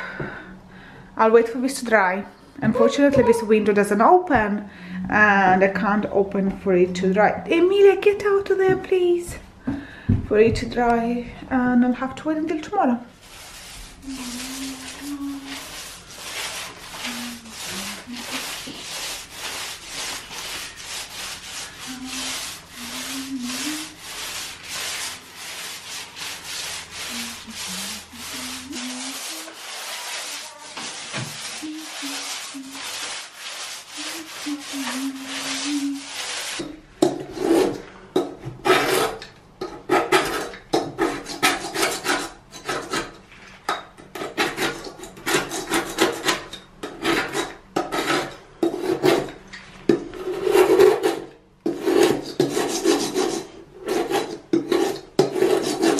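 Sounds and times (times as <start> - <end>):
paint roller rolling on wall: 13.1 - 39.3, 44.5 - 55.9
metal scraper scraping paint: 13.2 - 43.2, 43.8 - 55.9.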